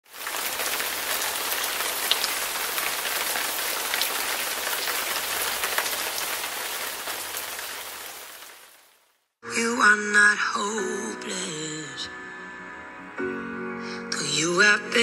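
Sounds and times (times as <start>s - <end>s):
rain on a hard surface: 0.0s - 9.2s.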